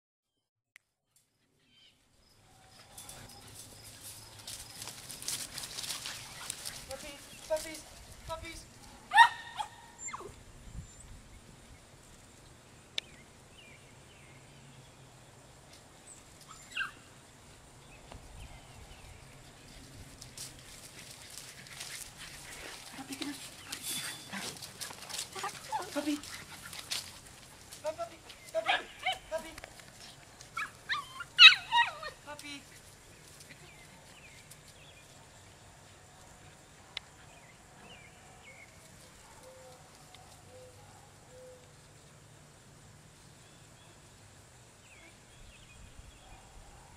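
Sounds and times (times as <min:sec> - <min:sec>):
puppy yelp: 0:09.1 - 0:10.4, 0:30.6 - 0:32.2.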